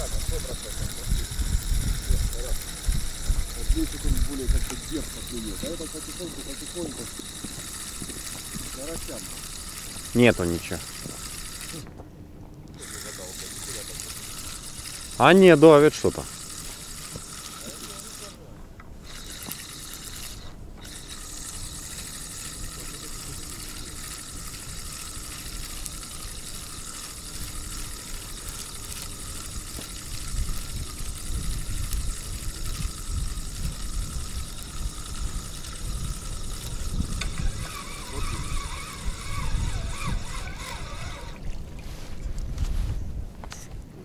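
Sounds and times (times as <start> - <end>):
fishing reel whirring: 0.0 - 11.9, 12.6 - 18.4, 19.0 - 42.2
microphone handling rumble: 41.4 - 43.9.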